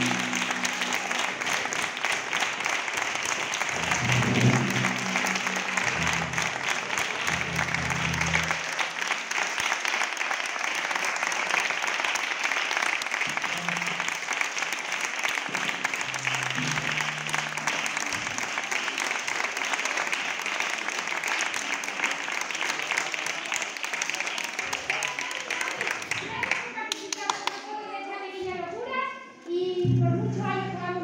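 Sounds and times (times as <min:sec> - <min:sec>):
audience applauding: 0:00.0 - 0:27.6.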